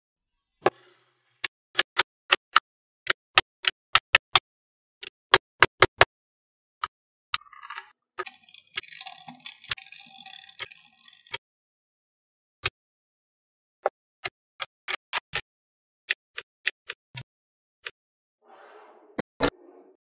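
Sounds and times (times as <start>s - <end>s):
magnetic balls rattling and scraping: 7.4s - 11.4s.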